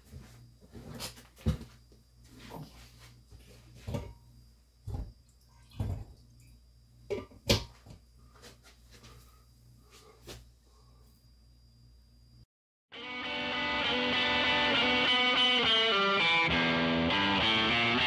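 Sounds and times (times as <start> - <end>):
low steady hum: 0.0 - 12.5.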